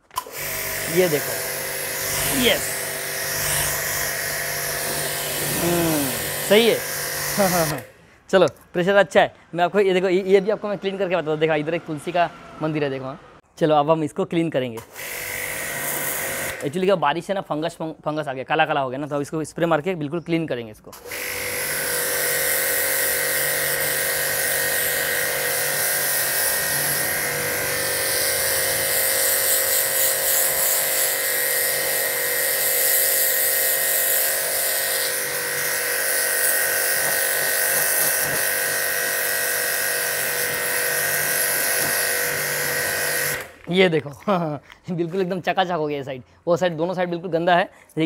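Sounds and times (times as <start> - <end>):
pressure washer motor whine: 0.1 - 7.9, 21.1 - 43.6
water jet hissing on concrete: 0.7 - 7.8, 21.7 - 43.5.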